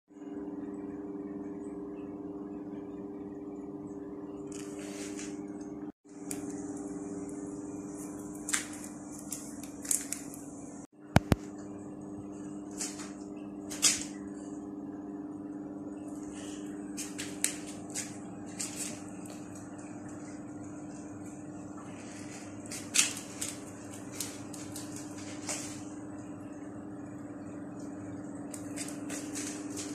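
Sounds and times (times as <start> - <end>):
steady low hum: 0.1 - 29.9
cats scratching in cat litter: 16.4 - 20.2, 21.9 - 25.8, 28.6 - 29.9.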